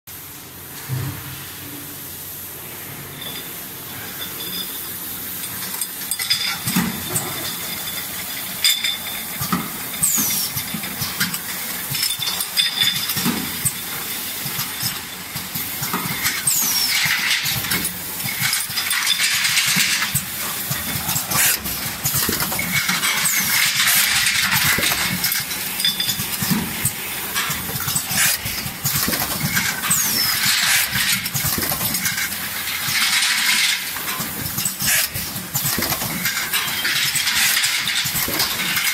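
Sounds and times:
machine and glass jars clattering: 0:03.1 - 0:38.9
pneumatic air hisses: 0:10.0 - 0:32.3, 0:34.1 - 0:36.6.

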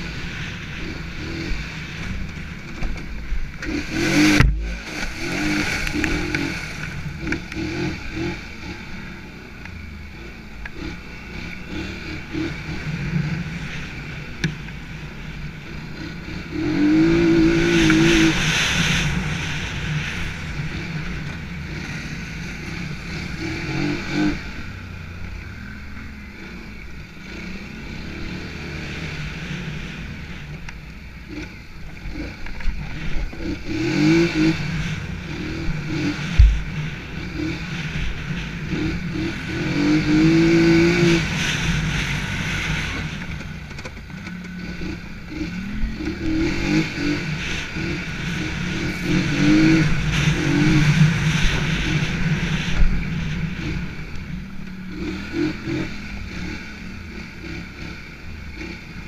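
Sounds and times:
atv engine revving: 0:00.0 - 0:59.0
sharp thump: 0:36.3 - 0:36.8.

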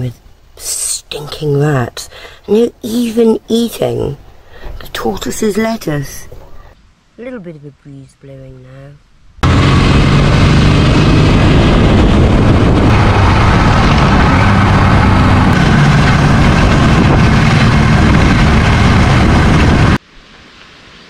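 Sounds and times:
motorcycle engine running: 0:09.4 - 0:20.0.

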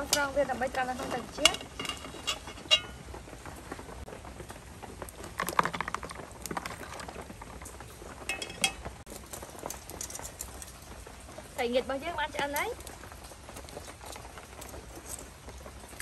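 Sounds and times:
metal ladle clinking: 0:00.0 - 0:03.1, 0:08.3 - 0:08.9
water bubbling in a pot: 0:00.0 - 0:09.2.

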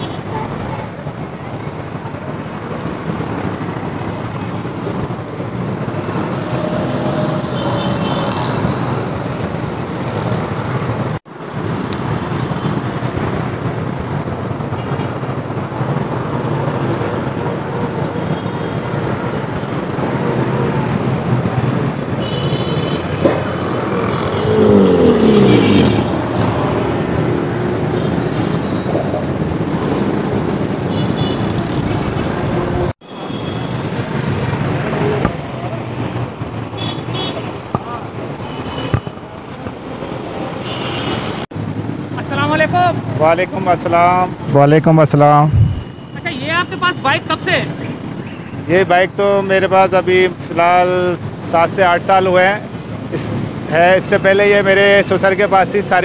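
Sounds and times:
street traffic noise: 0:00.0 - 0:56.0
vehicle passing close by: 0:23.4 - 0:27.8, 0:45.4 - 0:45.9.

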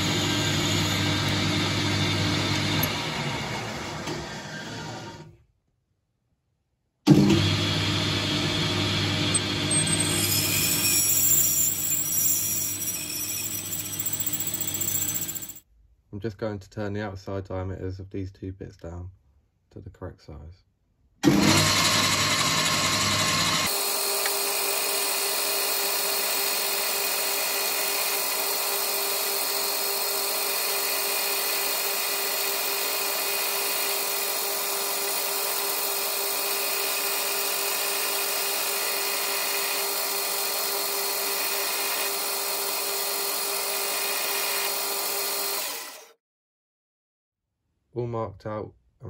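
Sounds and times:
lathe running: 0:00.0 - 0:05.0, 0:07.5 - 0:15.6, 0:21.3 - 0:46.0.

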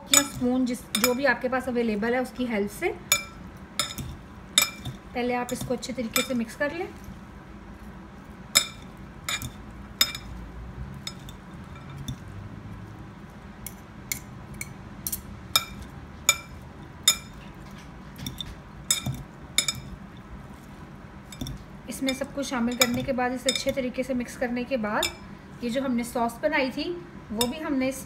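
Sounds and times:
fork clinking against glass bowl: 0:00.0 - 0:01.2, 0:03.1 - 0:06.4, 0:08.6 - 0:10.4, 0:11.0 - 0:12.2, 0:14.1 - 0:17.4, 0:18.2 - 0:20.0, 0:21.3 - 0:23.8.

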